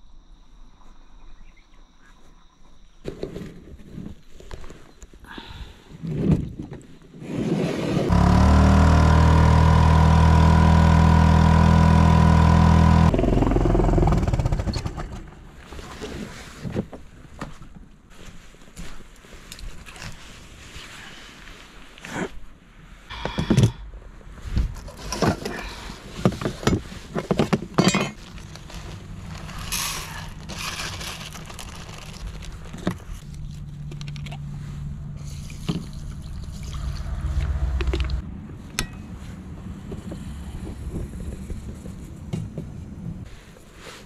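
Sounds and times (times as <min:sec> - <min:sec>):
low steady rumble: 0:28.1 - 0:43.5.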